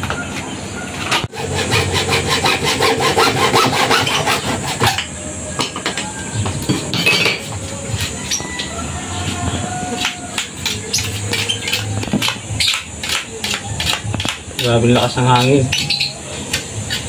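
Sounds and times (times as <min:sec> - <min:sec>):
hand saw cutting plastic pipe: 0:01.3 - 0:05.1.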